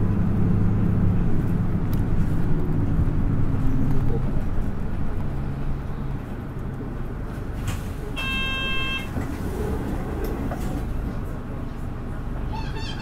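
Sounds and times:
bus engine and road rumble: 0.0 - 13.0.

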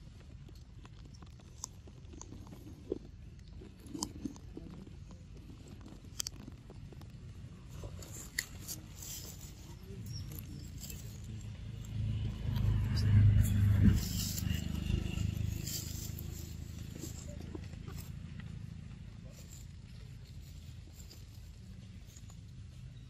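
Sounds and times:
low rumble: 4.5 - 23.0
dry leaves crackling: 7.6 - 22.8.

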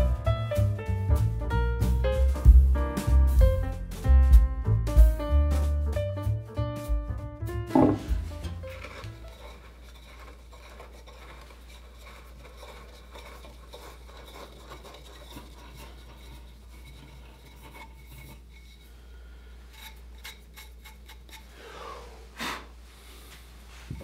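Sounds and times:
wood scraping against wood: 7.7 - 19.0.

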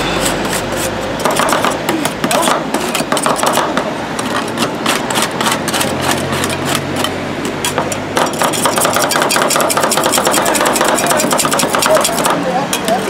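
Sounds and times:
metal spatulas clacking on cold plate: 4.9 - 13.0.

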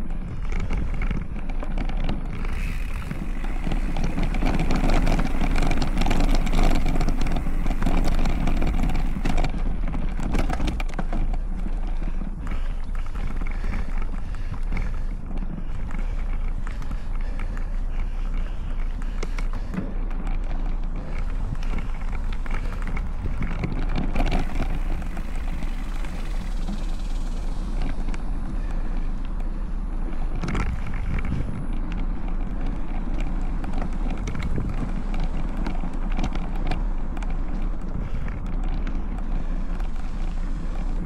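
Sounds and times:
bike clicks and rattles: 0.0 - 41.0
tyre noise on dirt: 0.0 - 41.0
wind on microphone: 29.8 - 36.3.

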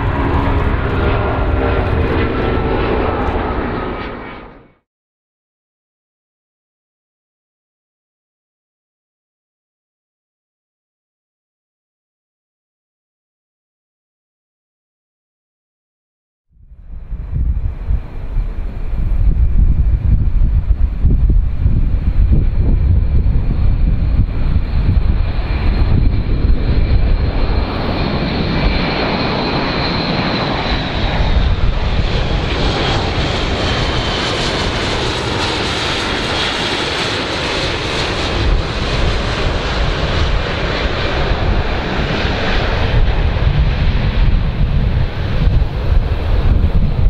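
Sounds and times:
high turbine whine: 0.0 - 4.8, 16.6 - 47.0
turboprop aircraft flying past: 0.0 - 4.9, 16.6 - 47.0.

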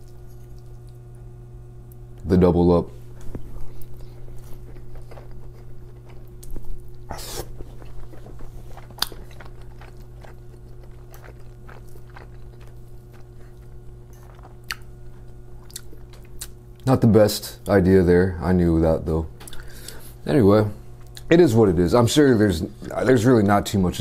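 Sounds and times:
chewing with wet mouth smacks: 0.0 - 1.2, 3.3 - 16.9.

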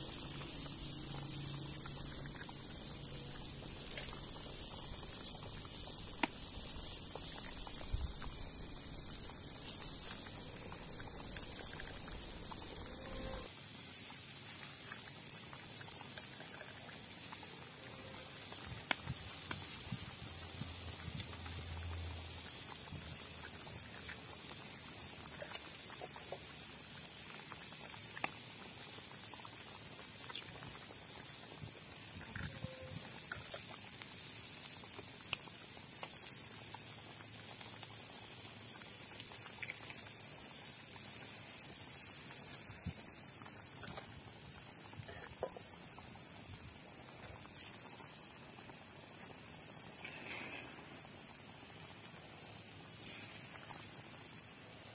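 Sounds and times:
loud high hiss: 0.0 - 13.5
soup bubbling in pan: 0.0 - 54.9
small pops and clicks: 0.2 - 12.9, 18.6 - 20.0, 28.0 - 28.5, 39.1 - 40.2.

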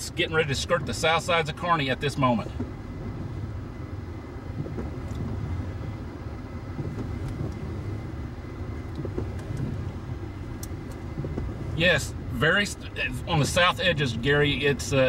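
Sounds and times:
low fluctuating rumble: 0.0 - 15.0
faint ticks: 10.5 - 11.5.

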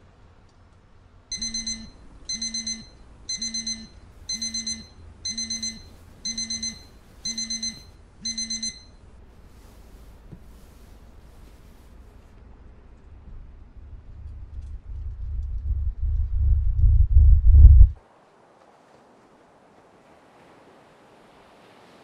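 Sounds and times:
electronic alarm beeping: 1.3 - 9.0.

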